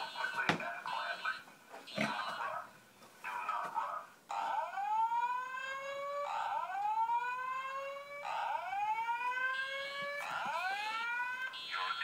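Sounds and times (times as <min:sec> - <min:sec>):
fire alarm whoop tone: 0:04.5 - 0:12.0.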